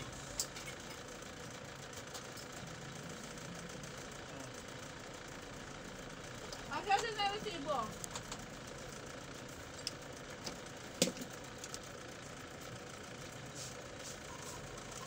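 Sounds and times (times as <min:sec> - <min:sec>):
low background hum: 0:00.0 - 0:15.0
wires and clips ticking: 0:05.1 - 0:13.4.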